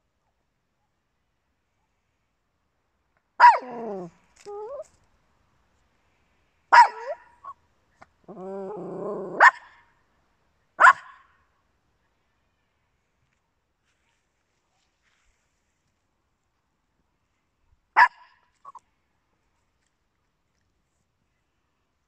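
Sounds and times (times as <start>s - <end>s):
small dog barking: 3.4s - 4.1s, 6.7s - 7.6s, 8.3s - 9.8s, 10.8s - 11.3s, 18.0s - 18.8s
dog growling: 8.2s - 9.4s.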